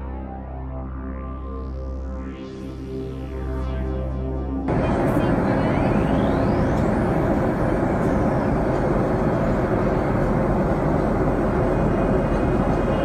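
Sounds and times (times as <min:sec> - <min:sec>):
airliner cabin engine noise: 0:04.7 - 0:13.0.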